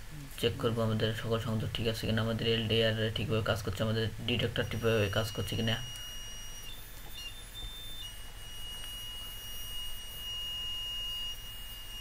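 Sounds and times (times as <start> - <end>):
high-pitched alarm buzzer: 4.2 - 12.0.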